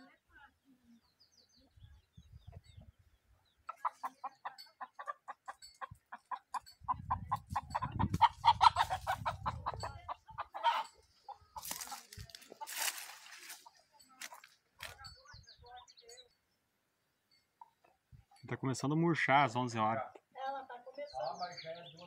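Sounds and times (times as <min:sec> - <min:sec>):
hen clucking: 0:02.4 - 0:15.8
rustling: 0:11.6 - 0:15.0.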